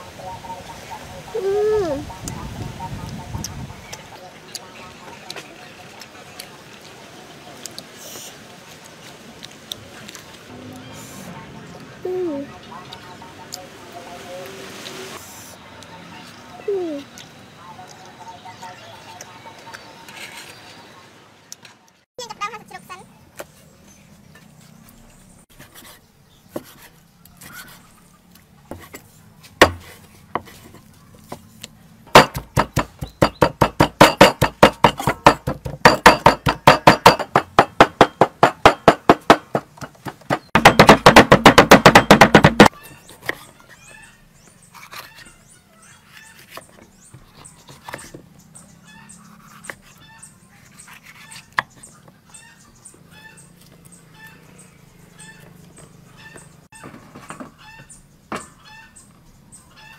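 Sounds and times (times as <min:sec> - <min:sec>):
cleaver chopping meat on wood: 0:29.6 - 0:30.5, 0:32.1 - 0:43.4.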